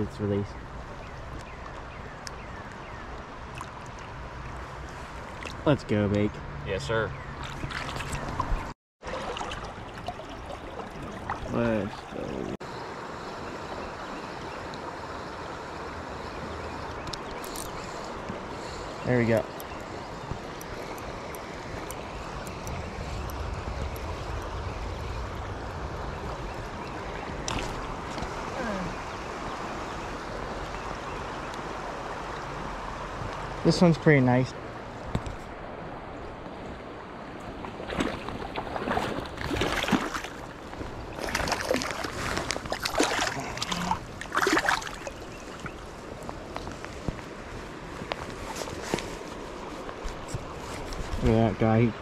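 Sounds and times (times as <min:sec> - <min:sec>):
water splashing in shallows: 0:07.4 - 0:12.6, 0:26.5 - 0:29.8, 0:37.4 - 0:46.6
creek water rushing: 0:07.4 - 0:52.0
wind rumble on microphone: 0:19.9 - 0:33.5.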